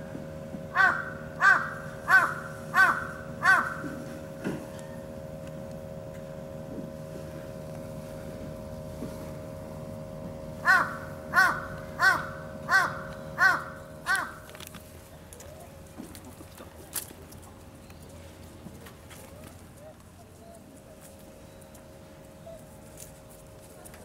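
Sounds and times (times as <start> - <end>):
steady hum: 0.0 - 24.0
crow cawing: 0.7 - 4.0, 10.6 - 14.5.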